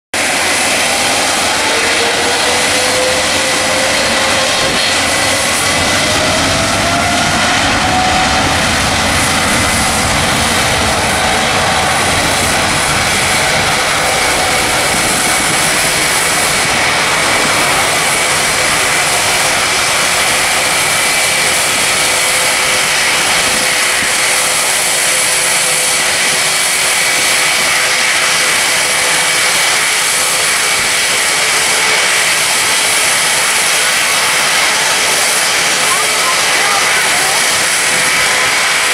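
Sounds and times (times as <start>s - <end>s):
jet engines spooling up: 0.2s - 38.9s.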